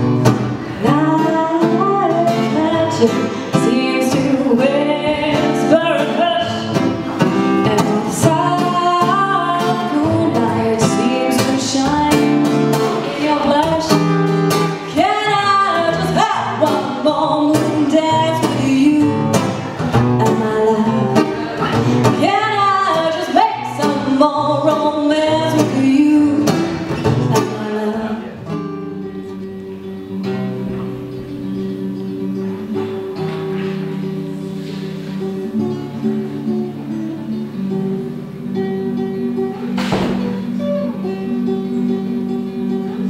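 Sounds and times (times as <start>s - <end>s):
strummed acoustic guitar: 0.0s - 43.0s
woman singing: 0.7s - 29.6s.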